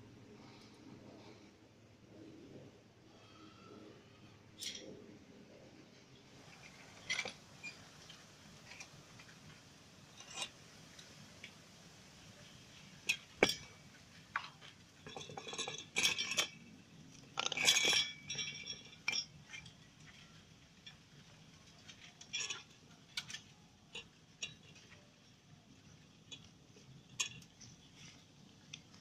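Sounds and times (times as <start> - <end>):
metal tools clinking: 14.4 - 16.7, 17.4 - 20.4.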